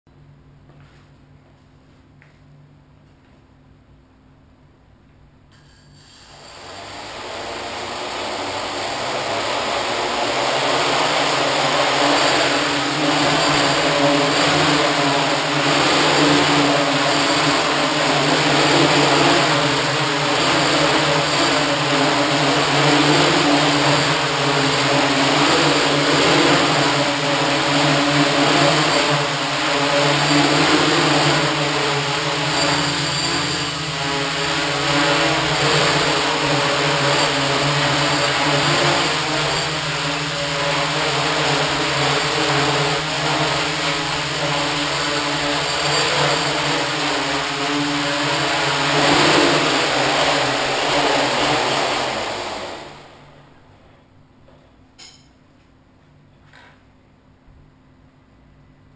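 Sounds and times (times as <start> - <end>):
drone motors whirring: 6.1 - 53.1.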